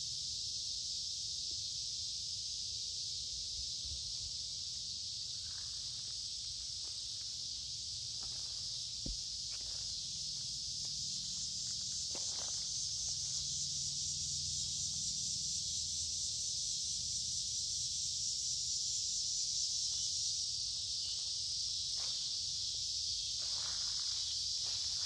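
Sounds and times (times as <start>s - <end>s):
cicadas buzzing: 0.0s - 25.0s
faint footsteps on wet creek bed: 8.2s - 11.0s.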